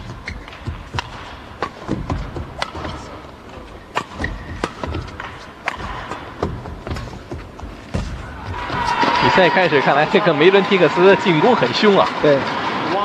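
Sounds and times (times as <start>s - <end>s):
shoe squeaks: 0.0s - 1.0s, 3.8s - 5.6s
racket striking shuttlecock: 0.0s - 8.5s
footfalls on court: 4.0s - 9.4s.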